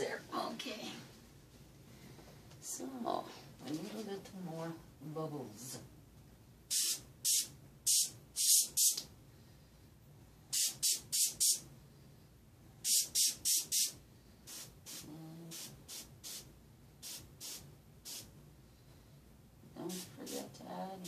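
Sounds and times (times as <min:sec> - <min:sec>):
airbrush spraying hiss: 0:06.7 - 0:09.0, 0:10.5 - 0:11.6, 0:12.8 - 0:18.3.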